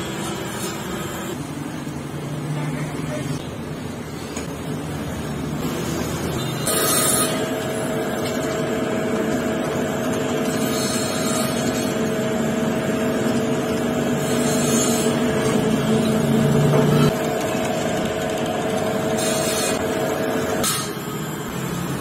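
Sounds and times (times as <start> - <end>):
drill press motor humming: 6.8 - 22.0.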